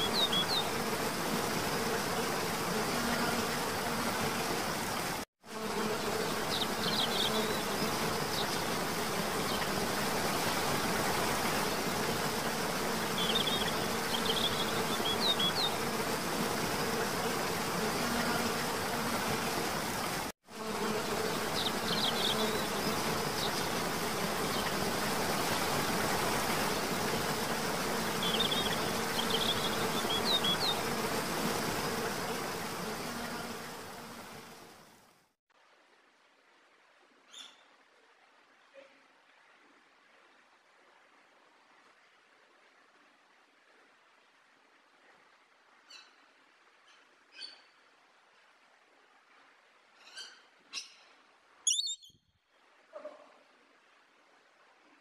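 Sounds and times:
insect buzzing: 0:00.0 - 0:35.2
short high bird chirps: 0:51.7 - 0:52.2.

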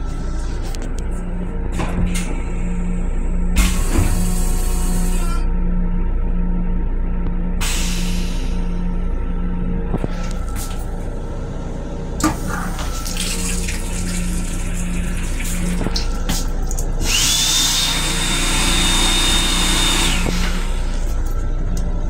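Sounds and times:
faucet running water into basin: 0:13.1 - 0:16.2.

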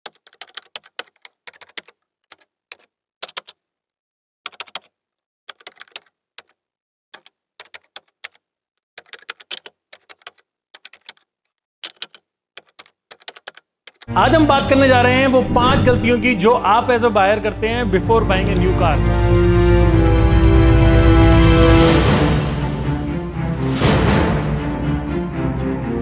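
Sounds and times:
keyboard key clicks: 0:00.1 - 0:03.6, 0:04.5 - 0:04.9, 0:05.5 - 0:06.6, 0:07.2 - 0:08.4, 0:09.0 - 0:11.2, 0:11.8 - 0:14.1.

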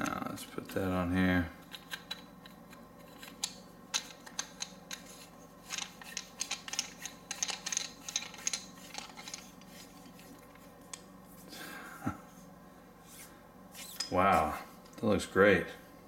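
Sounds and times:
small metal parts clicking and scraping: 0:03.0 - 0:10.6.

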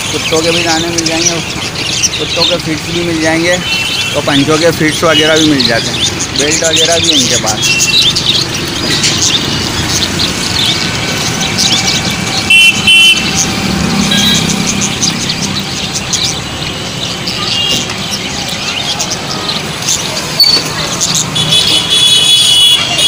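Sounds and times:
small parrots chirping: 0:00.0 - 0:23.0
street traffic: 0:00.0 - 0:23.0
vehicle horn honking: 0:12.5 - 0:13.4, 0:14.0 - 0:14.6, 0:21.4 - 0:23.0.

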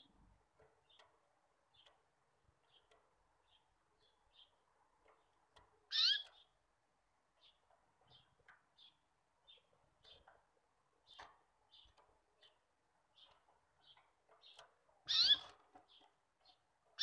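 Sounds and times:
bird chirp with sliding pitch: 0:15.1 - 0:15.5.

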